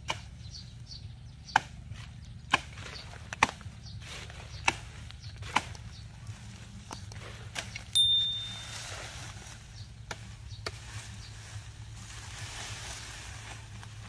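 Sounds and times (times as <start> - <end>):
rustling of brush and leaves: 0.0 - 14.0
bright bell ding: 8.0 - 9.0.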